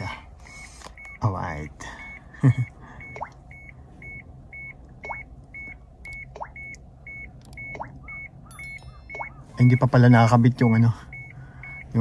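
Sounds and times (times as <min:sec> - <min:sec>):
faint rising chirps: 0:03.0 - 0:10.0.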